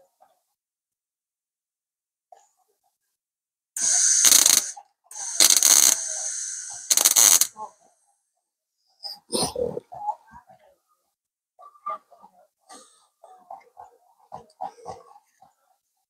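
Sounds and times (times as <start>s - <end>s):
welder crackling hiss: 3.8s - 7.5s.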